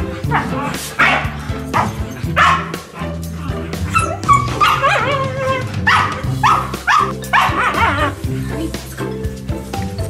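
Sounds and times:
dogs barking: 0.0s - 8.2s
dog whining yelp: 3.9s - 8.0s.

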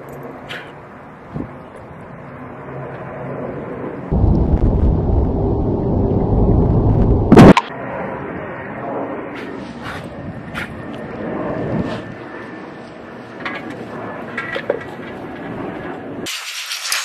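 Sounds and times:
loud low rumble: 4.1s - 7.7s.

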